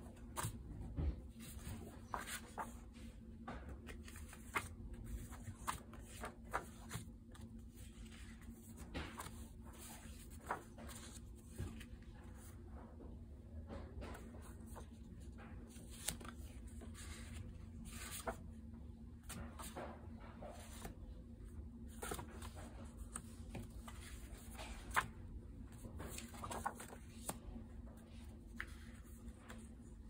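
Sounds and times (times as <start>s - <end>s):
paper cards rustling: 1.3s - 3.1s, 3.8s - 12.0s, 15.6s - 18.5s, 21.8s - 27.4s, 28.0s - 30.0s.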